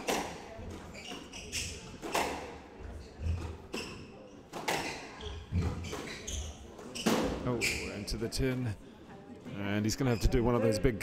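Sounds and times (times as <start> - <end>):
squash ball striking racquets and walls: 0.0 - 7.8.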